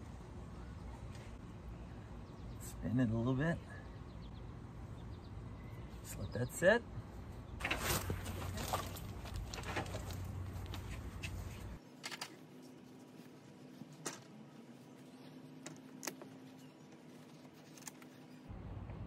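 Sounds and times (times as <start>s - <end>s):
low background rumble: 18.4s - 19.0s.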